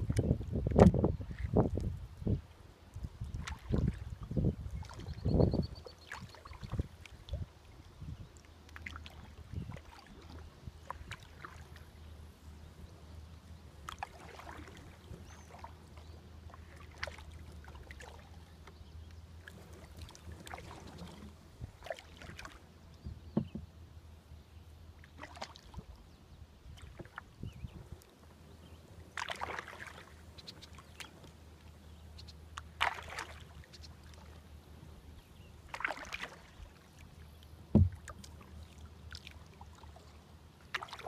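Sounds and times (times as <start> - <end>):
paddle splashes and drips: 0.0 - 23.8, 24.9 - 41.0.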